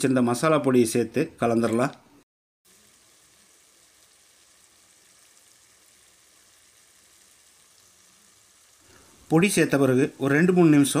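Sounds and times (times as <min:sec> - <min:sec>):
garlic sizzling in oil: 0:02.7 - 0:11.0.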